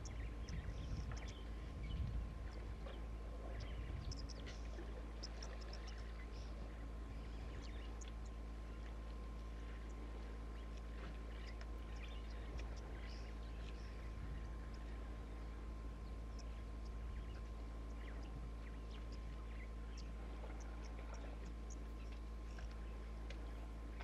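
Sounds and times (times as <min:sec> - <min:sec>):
faint high chirps and ticks: 0:00.0 - 0:24.0
low rumble: 0:00.0 - 0:24.0
thin steady hum: 0:00.0 - 0:24.0.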